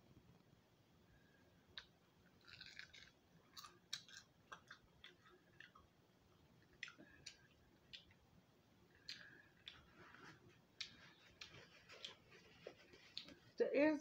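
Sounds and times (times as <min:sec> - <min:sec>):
crunchy chewing: 0:01.7 - 0:06.0, 0:08.8 - 0:13.5.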